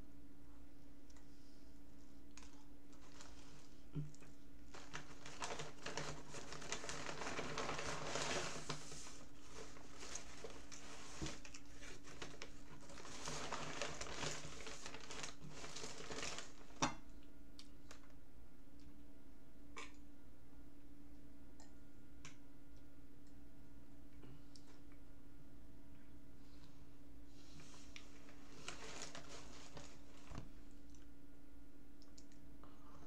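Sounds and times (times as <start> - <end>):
paper crinkling and rustling: 2.4 - 3.8, 4.6 - 16.9, 27.5 - 30.6.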